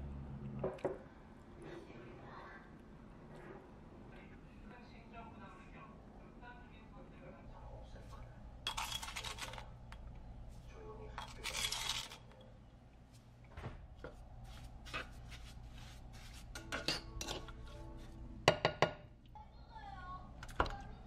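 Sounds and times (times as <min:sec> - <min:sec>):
spoons clinking on pan and jar: 0:08.7 - 0:09.6, 0:16.6 - 0:17.6.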